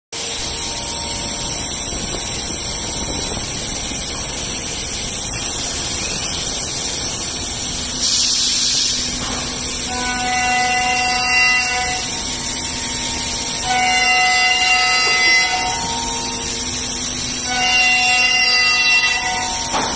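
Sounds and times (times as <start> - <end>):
multi-tone whine: 0.2 - 19.9
cnc router cutting wood: 9.6 - 19.9.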